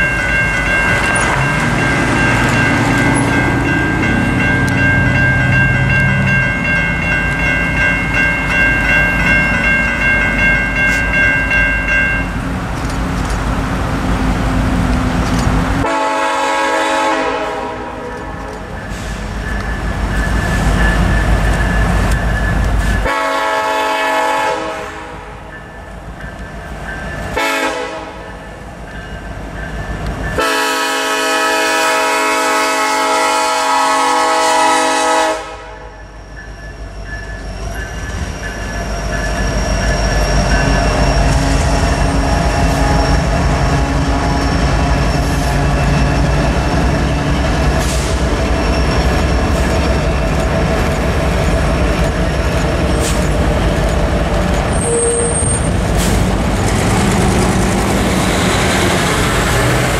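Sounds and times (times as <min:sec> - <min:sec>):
diesel locomotives rumbling: 0:00.0 - 0:59.9
locomotive air horn blast: 0:15.8 - 0:18.4, 0:23.0 - 0:25.4, 0:27.4 - 0:28.2, 0:30.4 - 0:35.9.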